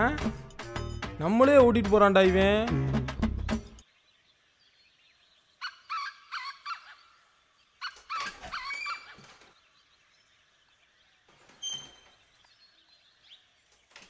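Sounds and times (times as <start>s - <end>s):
metal gate hinges squealing: 7.9s - 9.3s, 11.4s - 12.2s.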